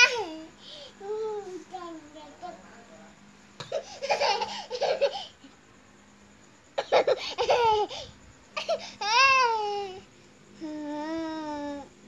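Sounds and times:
toddler laughing: 3.7 - 5.3, 6.8 - 9.5.

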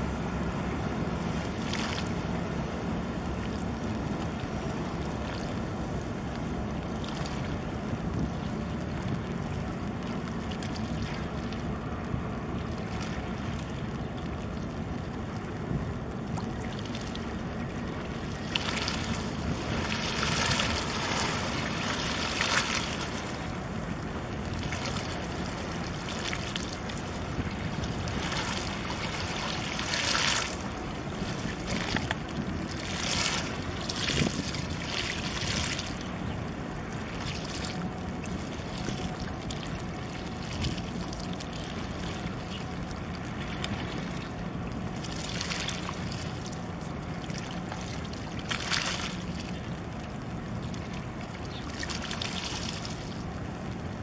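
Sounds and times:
boat engines rumbling: 0.0 - 54.0
wind gusting on microphone: 31.1 - 34.7.

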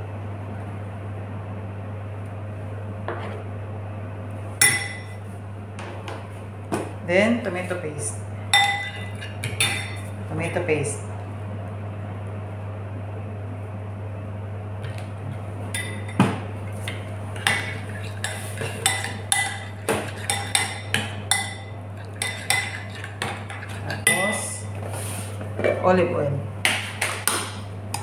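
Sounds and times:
steady low hum: 0.0 - 28.0
spoon clinking on glass bowl: 8.6 - 10.1, 18.8 - 24.4.

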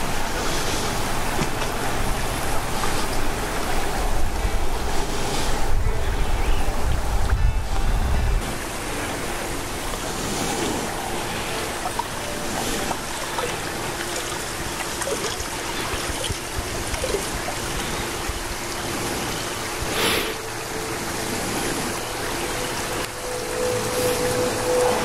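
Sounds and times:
faint steady hum: 0.0 - 25.0
creek water trickling over stones: 8.4 - 25.0.

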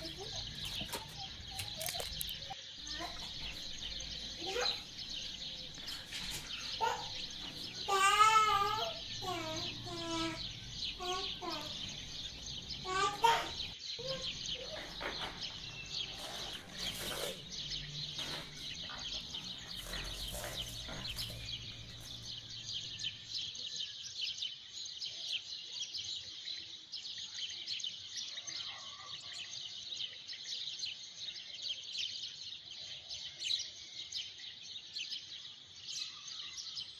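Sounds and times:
small birds chirping: 0.0 - 28.7.

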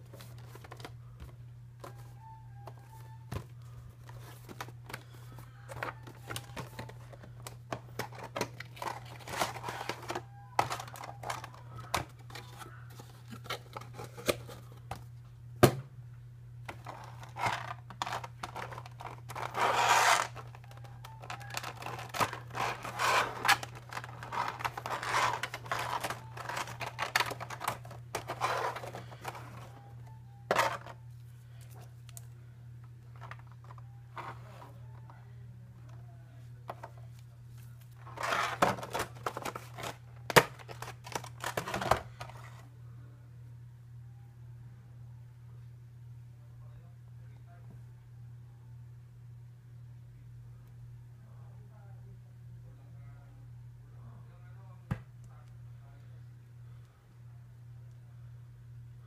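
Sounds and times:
packaging rustling and crinkling: 4.1 - 14.7, 16.7 - 29.7.

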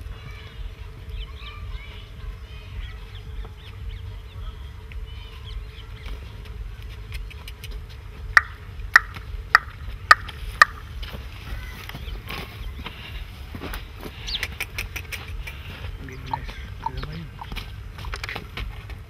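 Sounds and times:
birds chirping: 0.0 - 19.0
sharp clicks: 6.8 - 10.8, 14.3 - 15.6.

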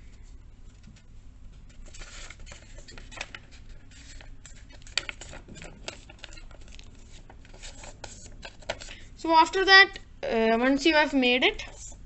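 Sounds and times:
paper rustling and crinkling: 0.2 - 9.0
paper crack: 1.7 - 9.0.

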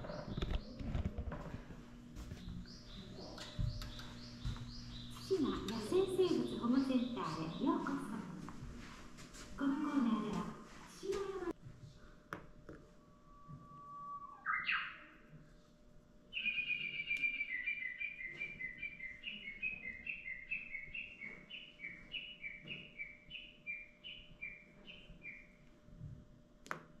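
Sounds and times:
recorded bird song from speaker: 0.0 - 8.2, 13.2 - 15.3, 16.3 - 25.7.

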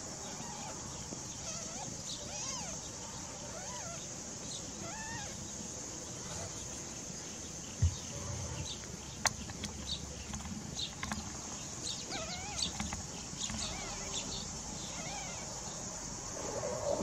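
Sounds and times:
dull thump: 7.8 - 8.8.

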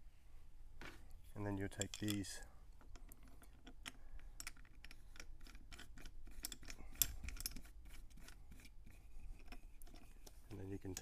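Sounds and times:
light clicks and clinks of hardware: 1.6 - 7.6, 9.5 - 11.0.

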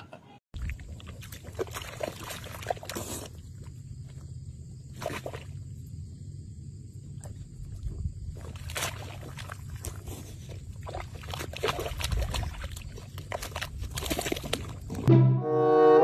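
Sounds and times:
mud squelching and sloshing: 0.6 - 4.2, 4.8 - 5.8, 7.1 - 15.1.

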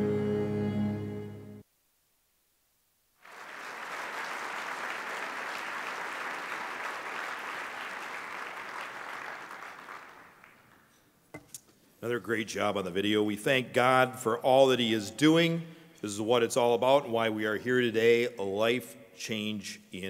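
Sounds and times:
audience applauding: 3.2 - 10.9.

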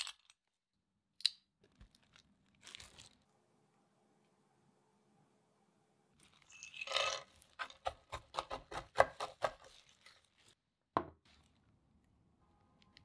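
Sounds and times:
knife chopping on wooden board: 7.6 - 9.7.

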